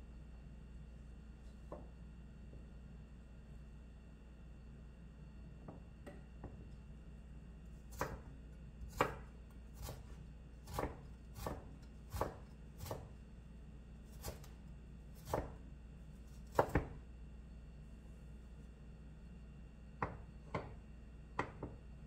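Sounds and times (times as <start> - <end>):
knife chopping on wooden board: 7.9 - 13.1, 14.1 - 14.6, 15.2 - 15.6, 16.4 - 17.0, 20.0 - 20.8.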